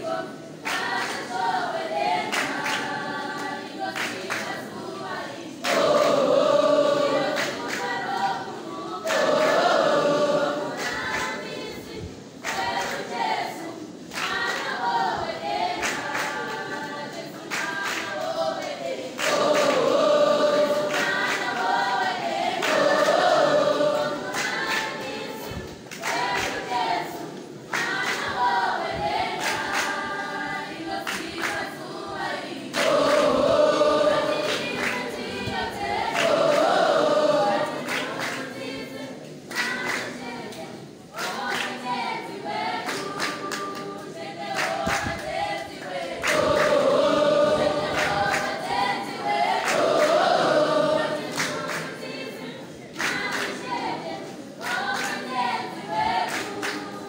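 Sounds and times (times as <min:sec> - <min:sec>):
choir singing unaccompanied: 0:00.0 - 0:57.0.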